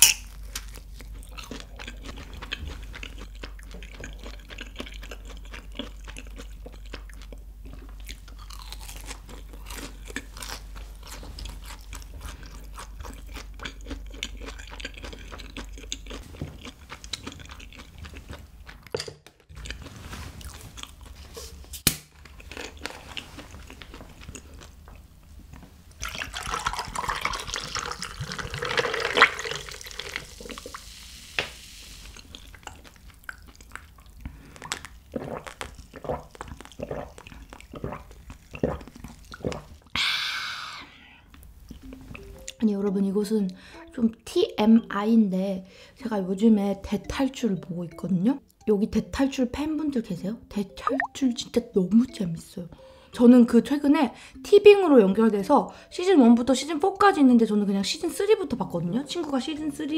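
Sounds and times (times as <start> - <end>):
chewing and crunching: 0.0 - 21.6, 22.2 - 25.0, 32.1 - 39.9
drink poured over ice: 26.0 - 30.7.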